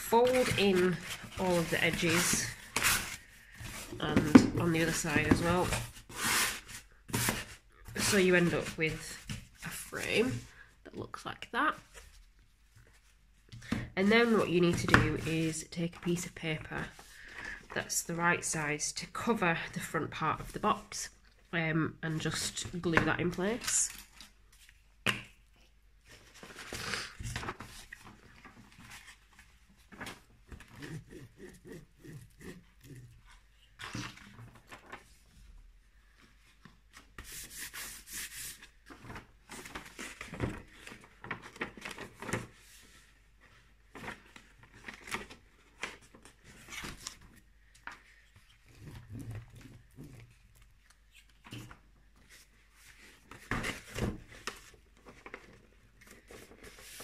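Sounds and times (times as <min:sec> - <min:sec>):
paper and cardboard rustling: 0:00.0 - 0:10.6, 0:26.0 - 0:35.5, 0:36.1 - 0:57.0.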